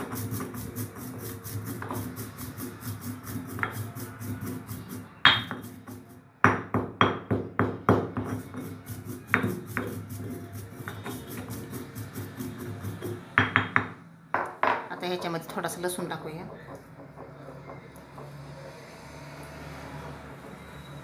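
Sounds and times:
pestle grinding in stone mortar: 0:00.0 - 0:06.1, 0:06.8 - 0:13.8
pestle striking stone mortar: 0:00.0 - 0:14.0.

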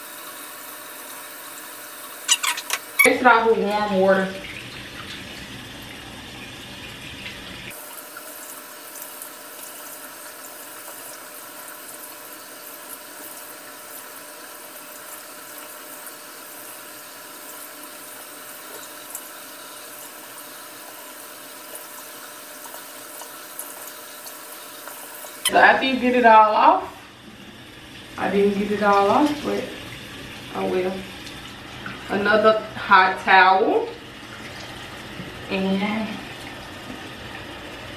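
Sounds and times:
tap running: 0:02.0 - 0:03.4, 0:33.9 - 0:35.5.

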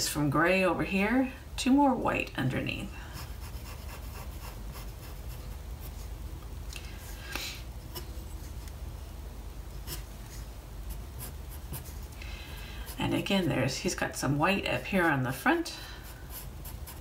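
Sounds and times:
pencil scratching on paper: 0:03.1 - 0:05.9, 0:10.9 - 0:12.1, 0:16.0 - 0:17.0.

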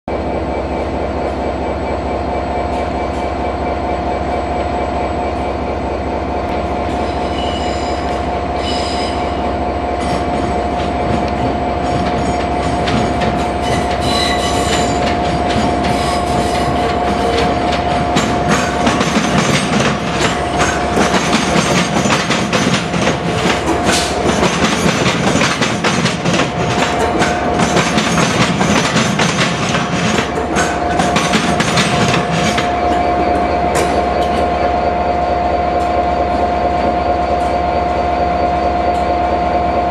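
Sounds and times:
train electrical whine: 0:00.1 - 0:39.9
wheel squeals: 0:07.0 - 0:09.4, 0:10.0 - 0:25.7
wheels clacking over rail joints: 0:10.0 - 0:33.1.

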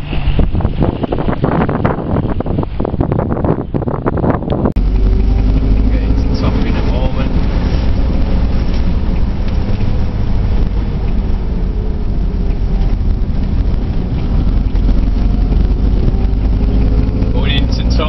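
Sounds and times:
road and wind noise: 0:00.0 - 0:18.0
car engine running: 0:04.1 - 0:18.0.

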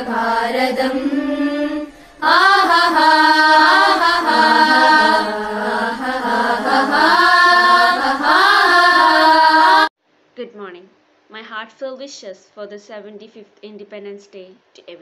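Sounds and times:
voices singing: 0:00.0 - 0:09.9.

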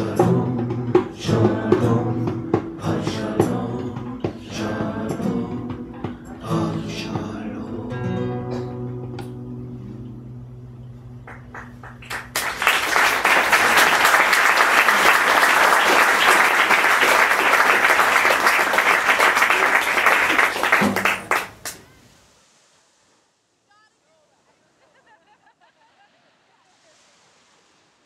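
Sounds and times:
audience applauding: 0:11.3 - 0:21.8.

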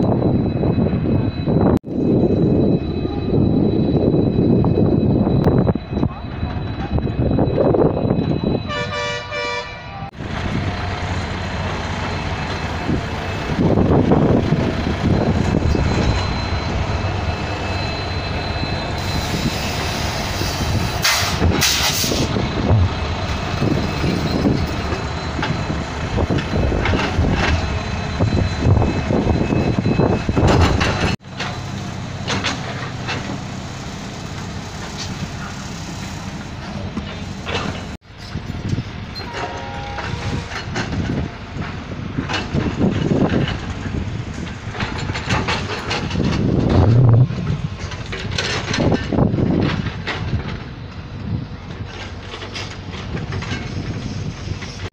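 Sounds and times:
heavy diesel machinery running: 0:00.0 - 0:54.9
horn: 0:08.7 - 0:10.0.

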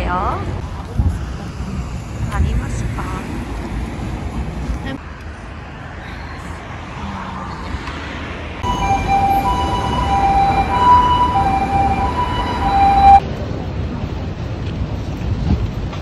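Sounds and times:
low traffic noise: 0:00.0 - 0:16.0
two-tone ambulance siren: 0:08.6 - 0:13.2.

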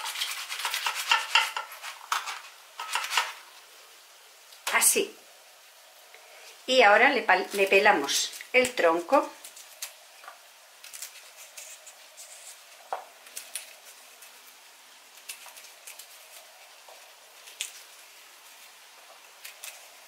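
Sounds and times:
knife scraping plant stem: 0:00.0 - 0:03.4, 0:10.8 - 0:14.4.

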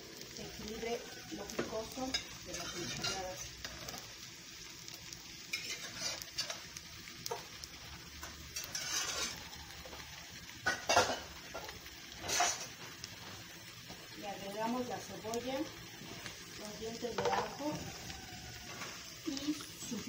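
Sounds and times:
potatoes sizzling in pan: 0:00.0 - 0:20.0
pots and dishes clattering: 0:05.5 - 0:06.6, 0:08.2 - 0:10.0, 0:10.6 - 0:13.5, 0:17.1 - 0:17.9.

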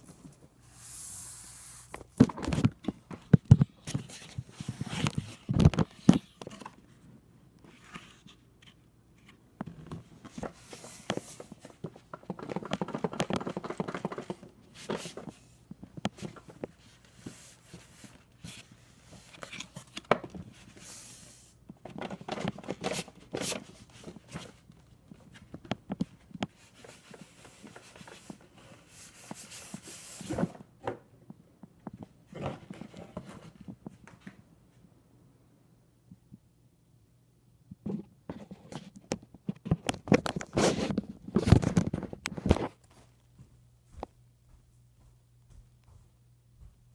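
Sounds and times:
cardboard and paper rustling: 0:01.9 - 0:07.1, 0:07.7 - 0:31.0, 0:39.6 - 0:43.0.

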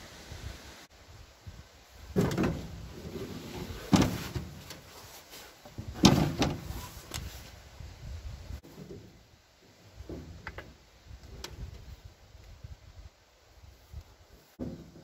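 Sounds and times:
heavy metal clunks: 0:02.2 - 0:02.8.

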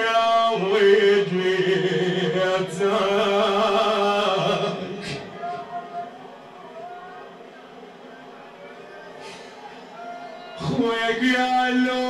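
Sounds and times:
man chanting a lament: 0:00.0 - 0:05.7, 0:10.6 - 0:12.0.

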